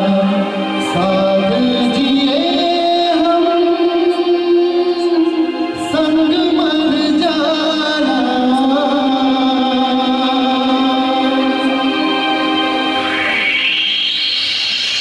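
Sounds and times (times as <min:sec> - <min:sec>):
man singing into microphone: 0:00.0 - 0:12.9
karaoke backing track: 0:00.0 - 0:15.0.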